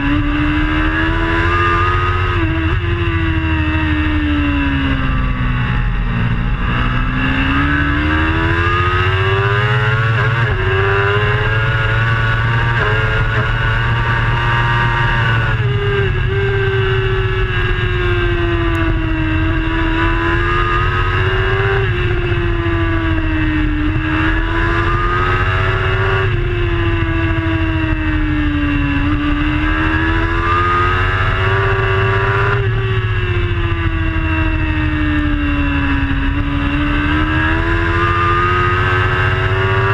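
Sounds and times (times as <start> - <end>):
motorcycle engine at high revs: 0.0 - 39.9
wind rumble on microphone: 0.0 - 39.9.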